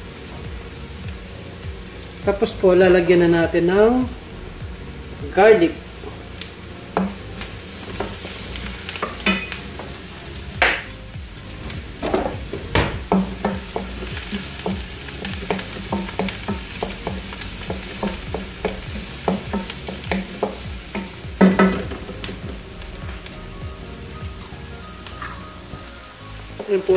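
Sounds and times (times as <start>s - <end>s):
onion sizzling in hot oil: 0.0s - 26.9s
wooden spatula scraping a wok: 5.0s - 23.4s.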